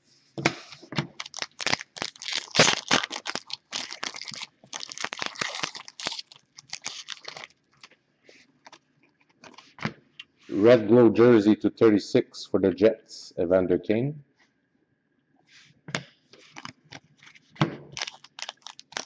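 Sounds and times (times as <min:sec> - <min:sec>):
wrapper tearing and crinkling: 0:01.1 - 0:07.9, 0:16.5 - 0:19.0
cards being handled: 0:16.4 - 0:19.0.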